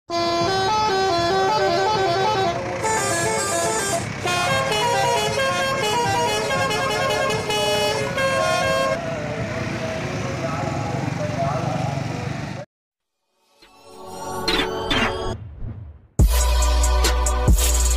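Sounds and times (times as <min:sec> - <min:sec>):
musical train horn tune: 0:00.1 - 0:09.1.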